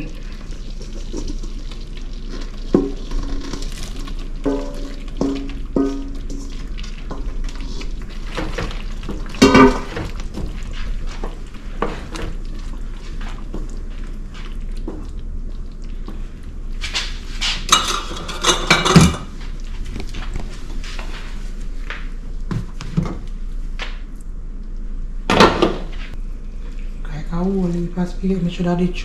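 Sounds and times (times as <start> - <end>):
spoon stirring in pan: 0.2 - 18.8
clanking pots and utensils: 2.3 - 12.4, 17.4 - 19.4.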